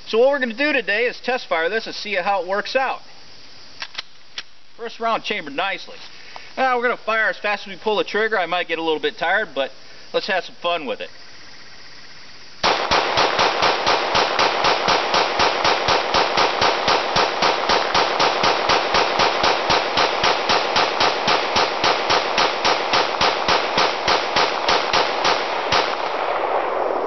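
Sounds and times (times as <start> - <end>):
pistol shots with echo: 12.6 - 27.0.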